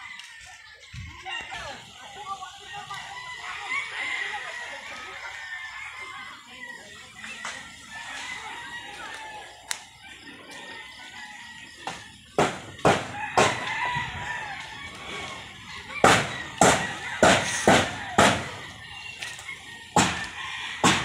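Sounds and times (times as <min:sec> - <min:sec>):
rooster crowing: 0:00.0 - 0:21.0
metal roofing sheets banging: 0:12.4 - 0:13.7, 0:16.0 - 0:18.6, 0:20.0 - 0:21.0.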